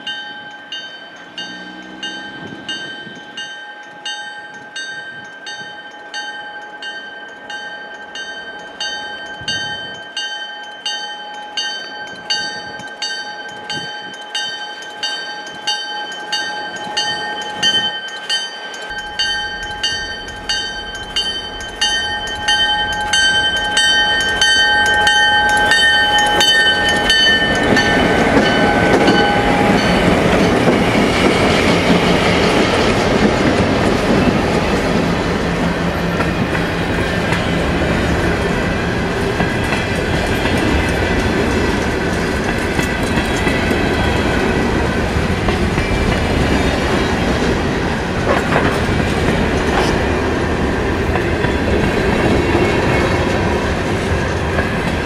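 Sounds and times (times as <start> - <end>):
railway crossing bell ringing: 0.0 - 55.0
train wheels passing: 0.0 - 55.0
locomotive engine rumble: 18.8 - 55.0.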